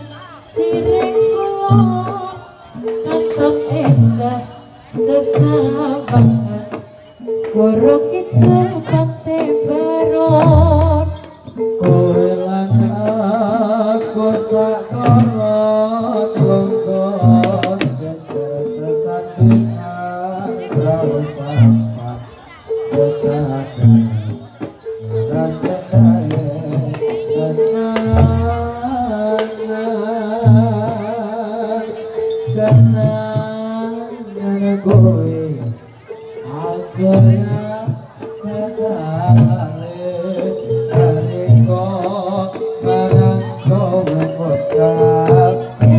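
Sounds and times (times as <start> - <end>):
gamelan accompaniment music: 0.0 - 45.9
wavering vibrato melody: 0.0 - 45.9
hand drum strokes: 22.8 - 31.2.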